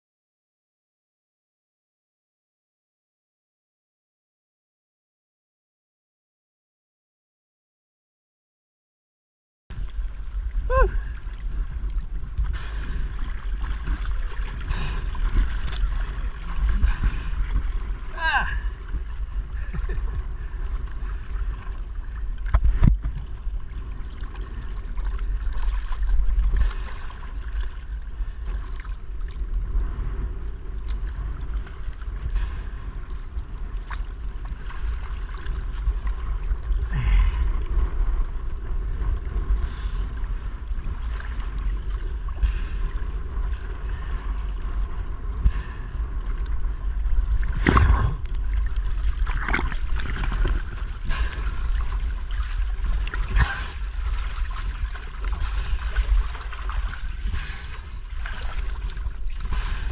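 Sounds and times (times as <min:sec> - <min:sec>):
wind rumbling on microphone: 0:09.7 - 0:59.9
sea water sloshing and splashing: 0:09.8 - 0:59.9.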